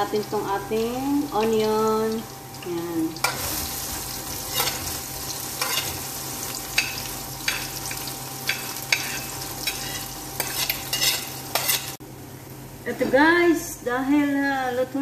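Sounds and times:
onion sizzling in oil: 0.0 - 13.4
metal spatula scraping wok: 3.2 - 7.7, 8.5 - 12.0.

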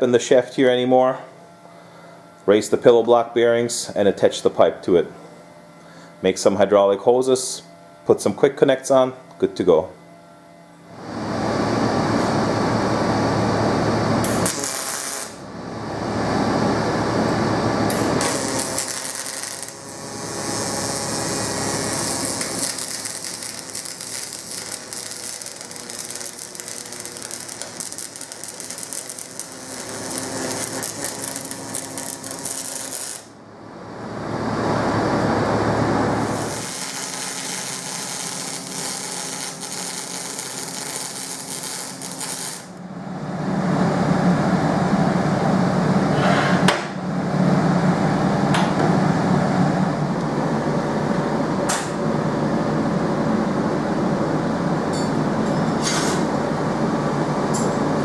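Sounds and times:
welding arc crackling and buzzing: 12.0 - 33.4, 34.9 - 43.0
welding hiss: 14.2 - 15.4, 17.9 - 33.4, 36.2 - 42.8.

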